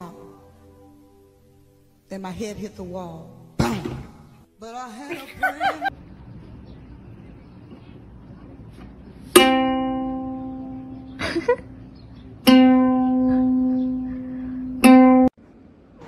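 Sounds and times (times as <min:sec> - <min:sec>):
ukulele string plucked: 0:09.3 - 0:11.2, 0:12.4 - 0:15.3.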